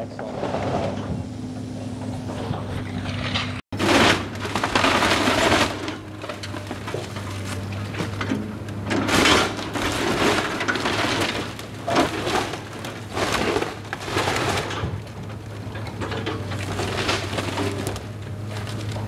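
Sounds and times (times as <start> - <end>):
excavator engine hum: 0.0 - 19.0
timber cracking and splintering: 3.8 - 8.4, 9.1 - 19.0.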